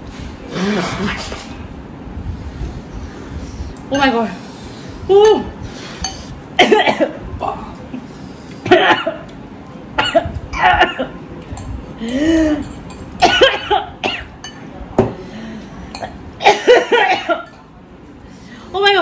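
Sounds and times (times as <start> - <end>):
people coughing: 6.6 - 7.2, 8.6 - 9.3, 10.0 - 11.2, 13.2 - 14.4, 16.0 - 17.6.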